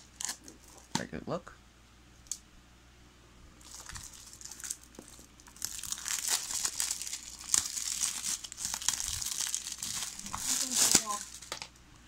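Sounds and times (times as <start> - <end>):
plastic wrap crinkling and tearing: 0.0 - 1.0, 3.6 - 11.7.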